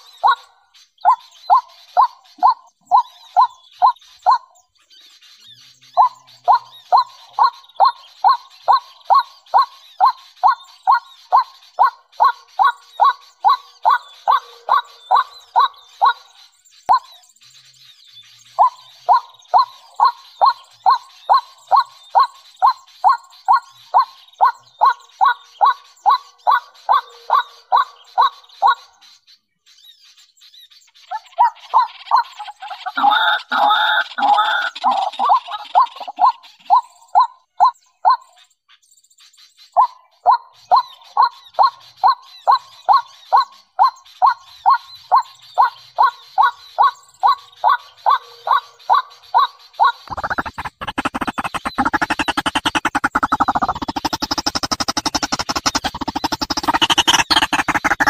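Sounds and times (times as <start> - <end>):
waterhen calling sharp notes: 31.4 - 36.6, 50.1 - 58.0
steady high-pitched hum: 50.1 - 58.0.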